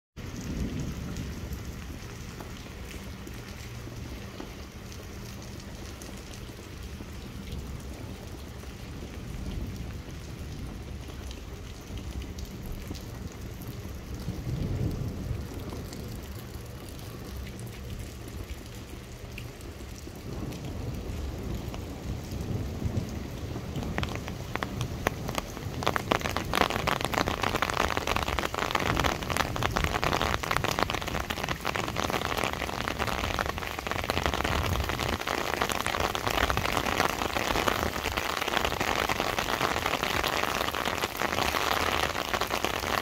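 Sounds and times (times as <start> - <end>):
thunder rumbling: 0.2 - 3.9, 11.9 - 16.5, 20.1 - 43.0
rain falling on pavement: 0.2 - 43.0.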